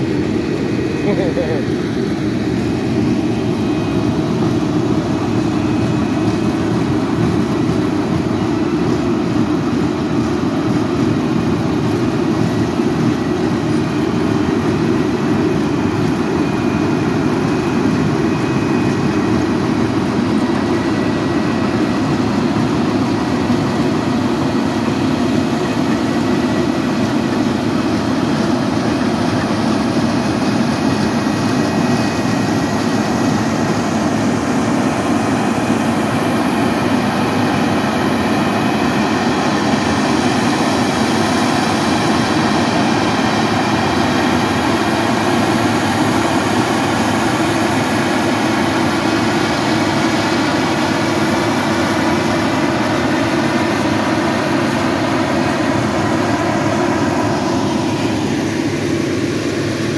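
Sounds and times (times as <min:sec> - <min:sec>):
heavy engine drone: 0:00.0 - 0:59.9.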